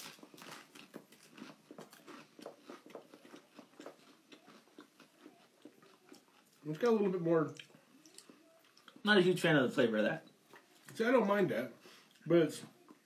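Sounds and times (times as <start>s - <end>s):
rice cakes crunching: 0.0s - 9.0s.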